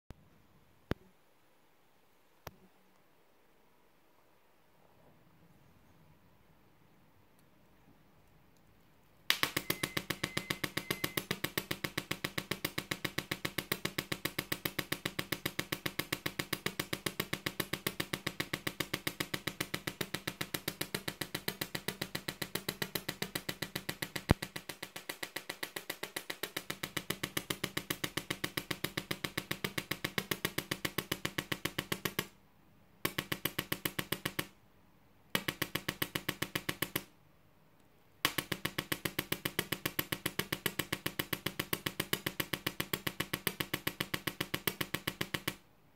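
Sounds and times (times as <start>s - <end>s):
tesla coil sparks popping: 9.3s - 22.4s.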